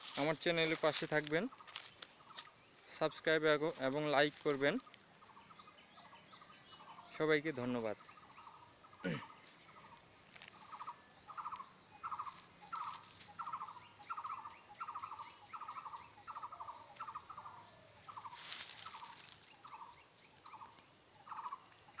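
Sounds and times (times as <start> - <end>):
animal trilled calls: 10.6 - 22.0.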